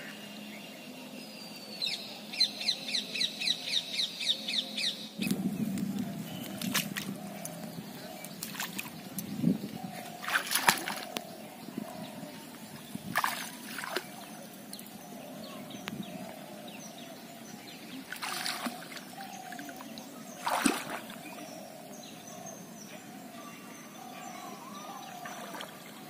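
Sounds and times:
water splashing around legs: 5.3s - 9.4s, 10.2s - 11.2s, 13.1s - 14.2s, 18.0s - 21.2s.

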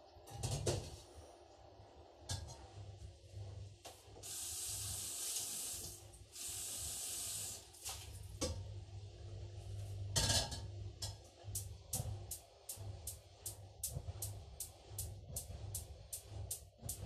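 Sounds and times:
pan knocking and clattering: 10.1s - 10.7s.

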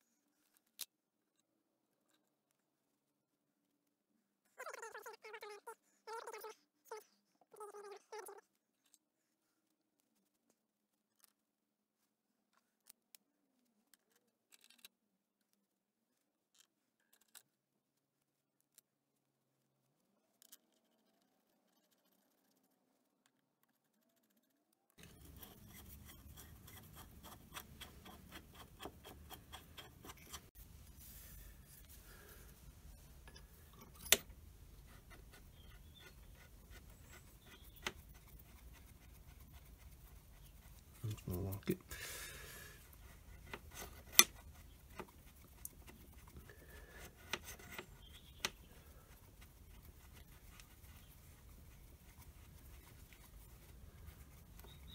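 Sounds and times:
metal parts clicking and scraping: 14.5s - 14.9s.

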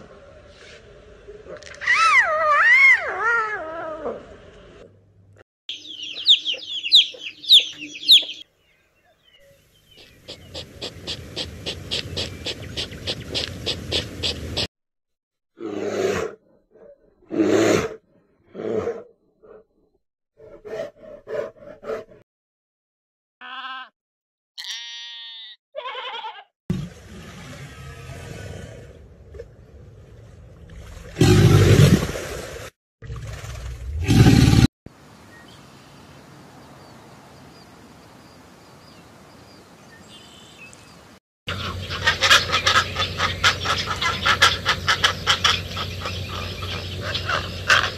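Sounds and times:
high bird chirps: 5.7s - 10.6s.

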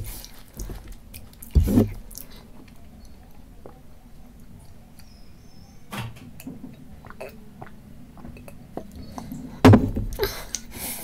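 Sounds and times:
gulping and swallowing: 7.0s - 9.4s.

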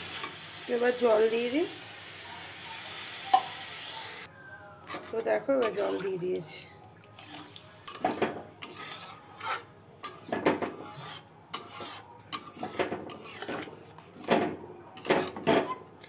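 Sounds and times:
metal spoon scraping a metal pan: 4.8s - 6.6s, 7.2s - 16.0s.

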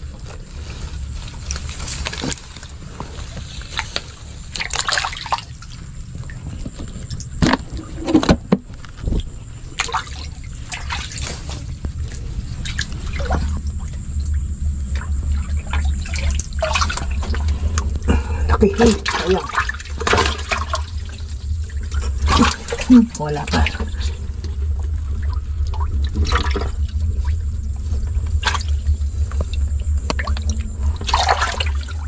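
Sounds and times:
steady low rumble: 0.0s - 32.0s
water trickling and dripping: 9.0s - 32.0s.

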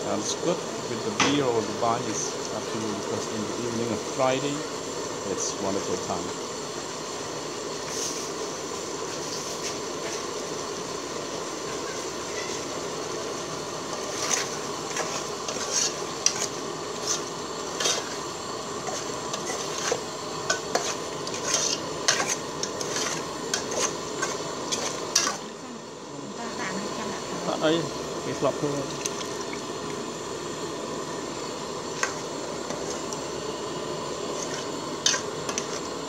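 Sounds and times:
simmering pot hissing: 0.0s - 36.0s
ladle scraping a metal pot: 14.0s - 18.2s, 18.8s - 25.4s.

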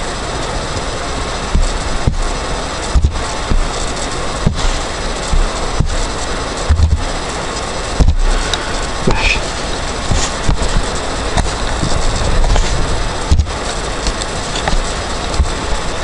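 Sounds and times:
microphone hiss: 0.0s - 16.0s.

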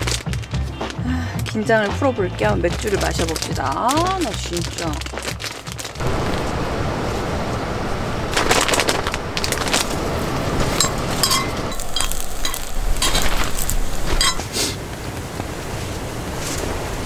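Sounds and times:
squid sizzling in a skillet: 10.8s - 14.7s.

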